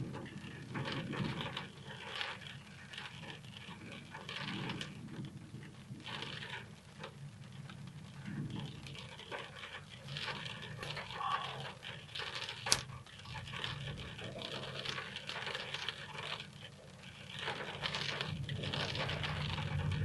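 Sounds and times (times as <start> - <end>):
rain pattering on a car: 0.0 - 20.0
low thunder rumble: 3.9 - 9.3, 17.8 - 20.0.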